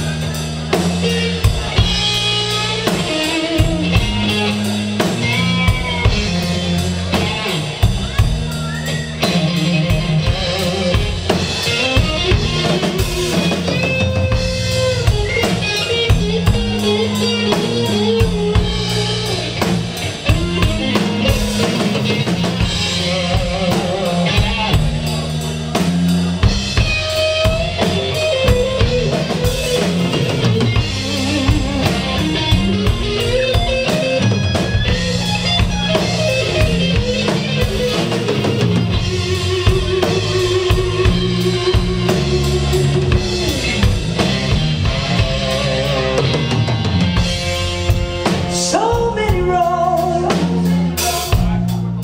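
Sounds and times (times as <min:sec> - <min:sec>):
bass guitar: 0:00.0 - 0:52.0
drum kit: 0:00.0 - 0:52.0
electric guitar lead: 0:00.0 - 0:52.0.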